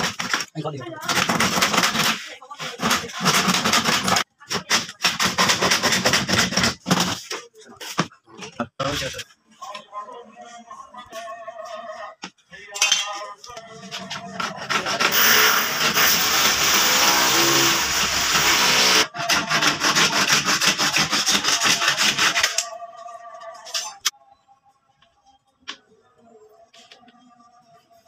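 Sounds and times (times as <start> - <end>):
hacksaw cutting plastic panel: 14.4 - 22.7.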